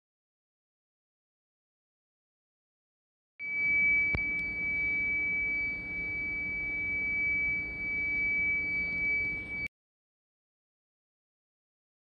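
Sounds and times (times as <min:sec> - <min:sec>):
steady high-pitched tone: 0:03.4 - 0:09.7.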